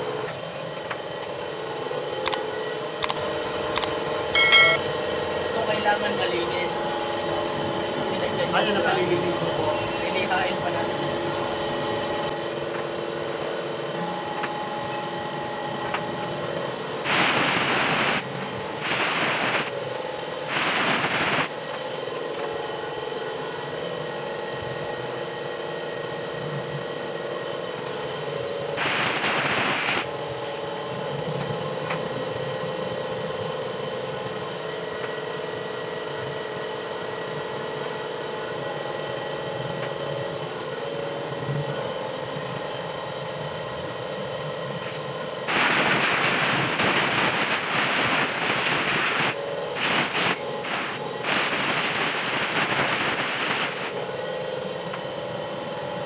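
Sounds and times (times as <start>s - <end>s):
mechanical hum: 0.0s - 56.0s
air blow gun hissing: 16.7s - 22.0s, 27.8s - 30.6s, 44.8s - 54.2s.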